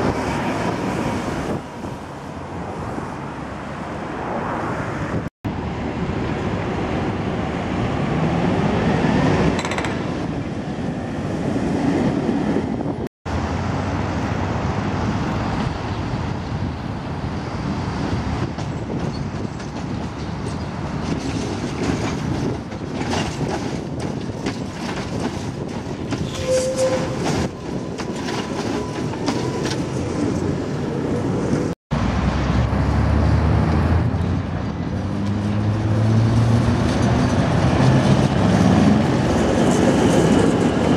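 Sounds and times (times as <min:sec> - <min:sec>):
road traffic noise: 0:00.0 - 0:24.4, 0:25.5 - 0:40.9
tram wheels clattering on rails: 0:06.0 - 0:10.6, 0:14.9 - 0:31.7, 0:34.2 - 0:40.9.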